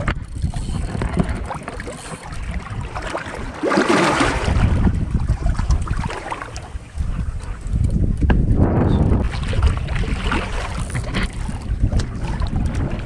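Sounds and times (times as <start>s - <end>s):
water sloshing against boat: 0.0s - 13.0s
wind buffeting microphone: 0.0s - 13.0s
water splash: 0.9s - 6.7s, 9.2s - 13.0s.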